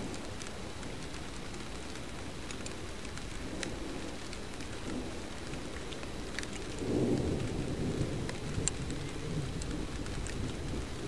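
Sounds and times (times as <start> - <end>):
light ticks: 0.0 - 7.6, 8.2 - 10.8
rain hiss: 0.0 - 11.0
wind: 0.0 - 11.0
distant thunder rumbling: 3.3 - 11.0.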